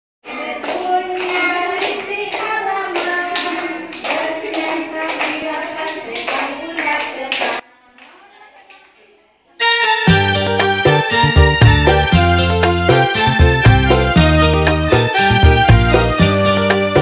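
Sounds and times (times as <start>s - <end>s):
children singing in unison: 0.2s - 6.8s
hand claps: 0.6s - 8.1s.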